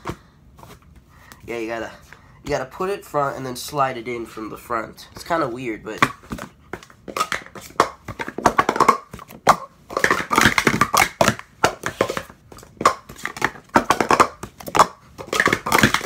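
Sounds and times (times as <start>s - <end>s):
cups tapping onto a mat: 6.0s - 16.0s
plastic cups clattering: 6.0s - 16.0s.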